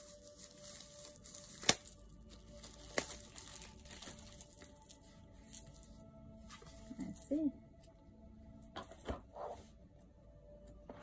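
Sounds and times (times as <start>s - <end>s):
plastic wrap crinkling: 0.0s - 6.0s.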